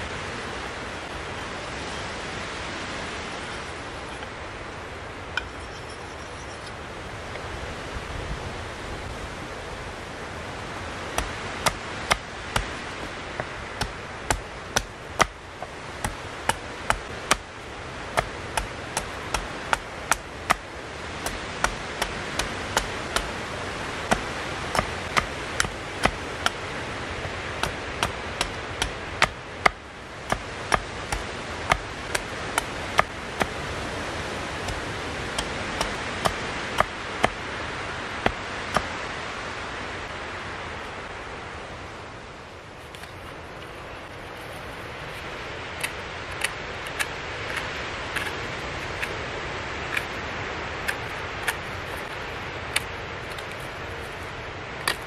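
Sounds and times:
rushing background noise: 0.0s - 55.0s
hatchet chopping wood: 11.1s - 26.8s, 27.6s - 37.4s, 38.2s - 38.9s.

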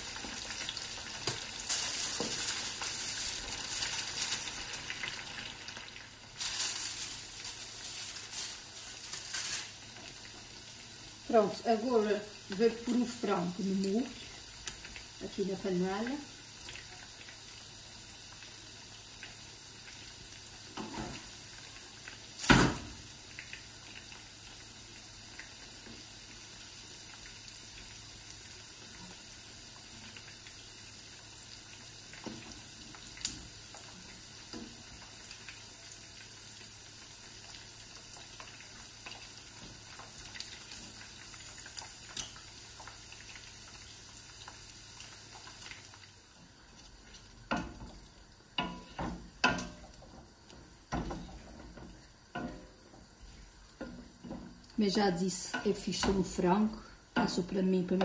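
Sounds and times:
chicken sizzling in hot oil: 0.0s - 58.0s.

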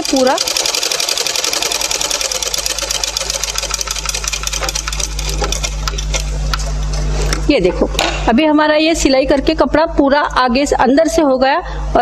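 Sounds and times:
sewing machine stitching: 0.0s - 6.3s
motor low hum: 0.0s - 10.6s.

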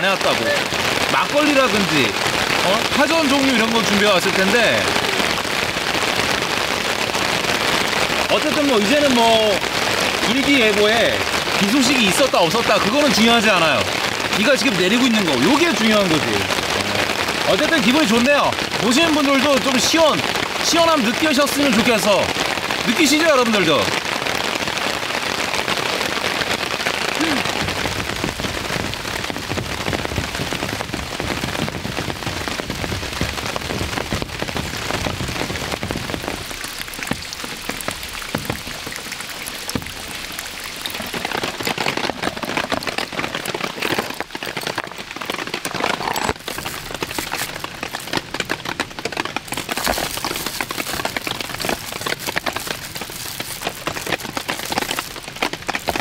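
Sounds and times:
heavy rain falling: 0.0s - 56.0s
separate raindrops: 0.0s - 56.0s.

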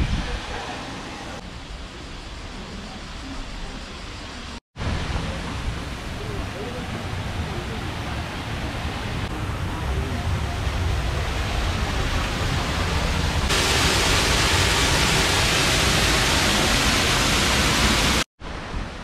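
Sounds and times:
waterfall rushing: 4.8s - 18.3s.

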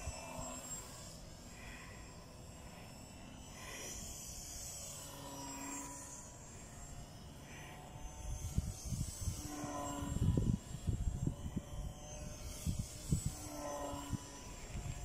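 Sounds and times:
model airplane motor buzzing: 0.0s - 15.0s
wind buffeting microphone: 8.4s - 13.5s.

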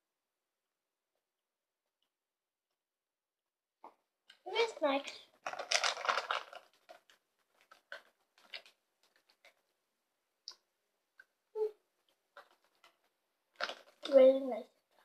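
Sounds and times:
faint clicks and crackles: 3.8s - 9.8s, 12.0s - 15.0s.

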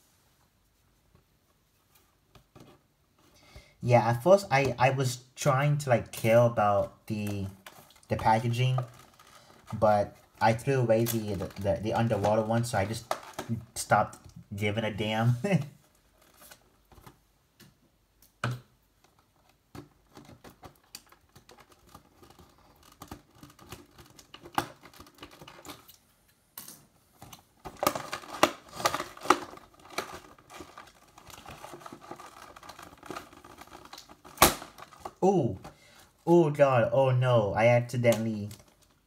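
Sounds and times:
packaging clicks taps and scrapes: 27.2s - 35.8s.

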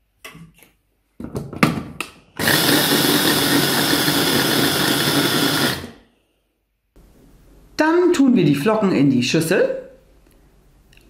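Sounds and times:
mini chopper grinding oats: 2.4s - 6.0s.

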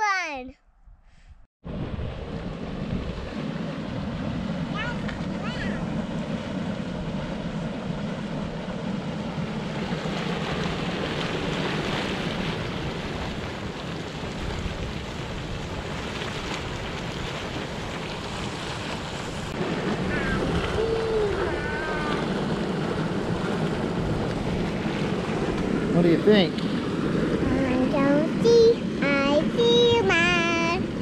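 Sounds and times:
faint voice calling: 20.0s - 22.3s.

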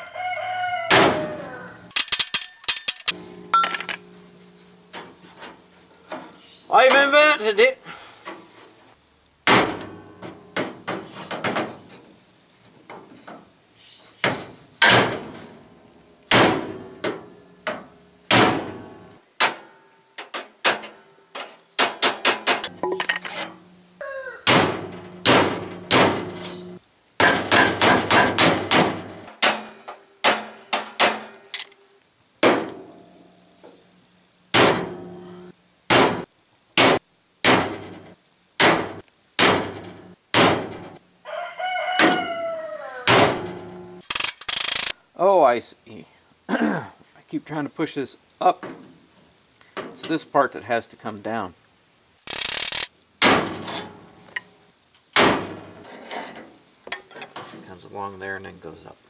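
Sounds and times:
metal grille ringing: 0.9s - 7.6s, 9.4s - 12.0s, 14.2s - 19.2s, 21.9s - 31.6s, 34.5s - 36.3s, 37.5s - 41.0s, 43.1s - 44.0s, 53.2s - 54.6s, 55.2s - 58.1s.

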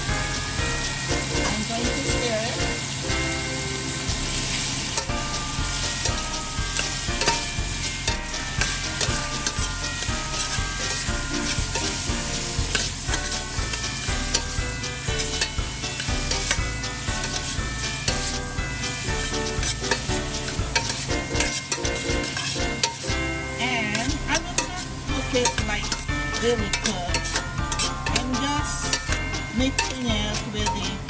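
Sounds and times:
meat sizzling in oil: 0.0s - 30.5s
spatula scraping metal pot: 6.0s - 23.1s, 23.8s - 31.0s.

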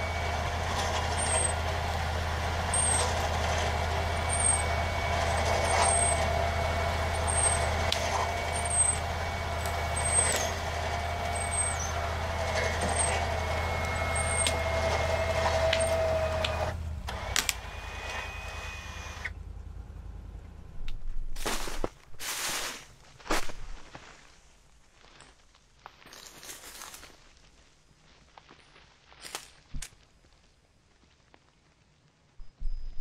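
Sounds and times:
vehicle engine under load: 0.0s - 23.9s
wood cracking and snapping: 13.8s - 18.3s.

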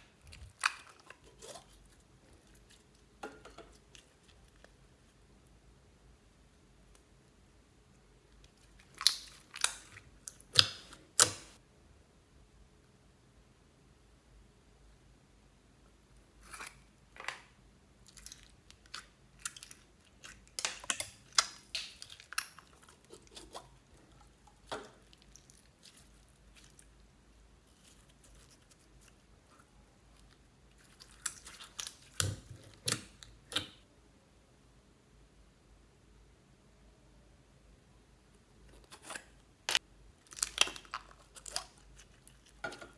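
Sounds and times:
beaded slime crackling: 18.1s - 33.8s, 39.7s - 42.9s.

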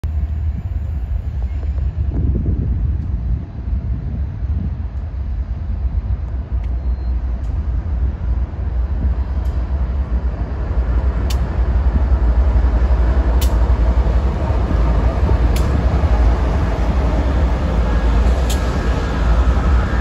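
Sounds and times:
diesel locomotives passing: 0.0s - 20.0s
sharp clicks: 13.4s - 13.6s.

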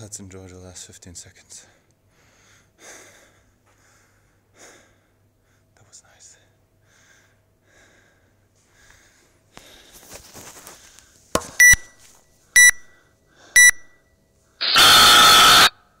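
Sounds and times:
long timer beep: 11.6s - 12.0s, 12.6s - 12.9s, 13.6s - 14.0s
timer beeps: 11.6s - 12.0s, 12.6s - 13.0s, 13.6s - 14.0s.

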